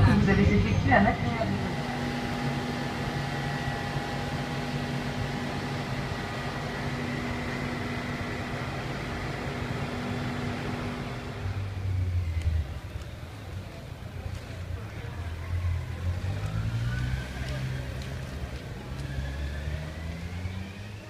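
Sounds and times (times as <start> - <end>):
train equipment humming: 0.0 - 16.6.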